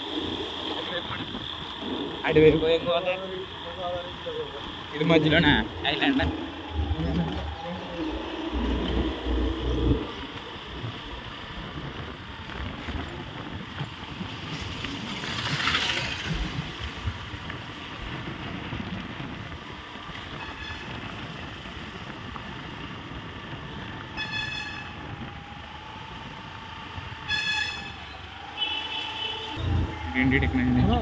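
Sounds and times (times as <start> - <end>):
motorbike engine: 0.0 - 31.0
horn beeps: 27.2 - 31.0.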